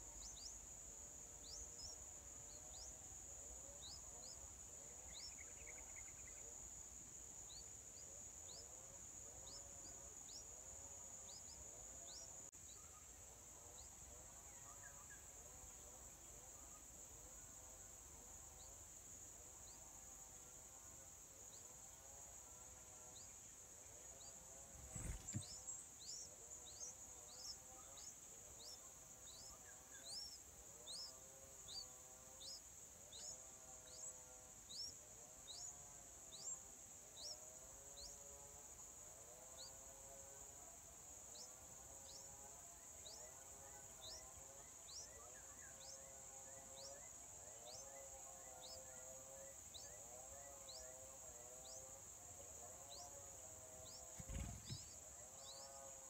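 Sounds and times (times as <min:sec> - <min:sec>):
high insect drone: 0:00.0 - 0:56.0
thump: 0:24.8 - 0:25.6, 0:54.2 - 0:55.0.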